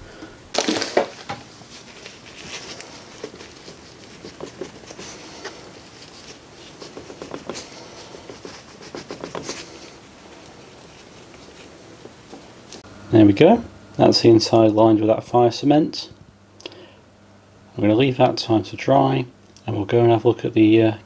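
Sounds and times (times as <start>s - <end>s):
cement scraping and rustling: 0.5s - 12.5s.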